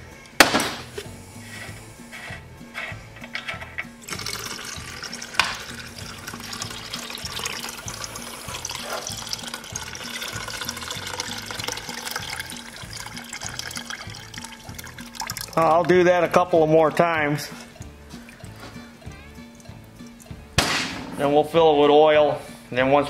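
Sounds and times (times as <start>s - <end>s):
background music: 0.0s - 23.0s
liquid pouring into plastic bucket: 4.0s - 16.0s.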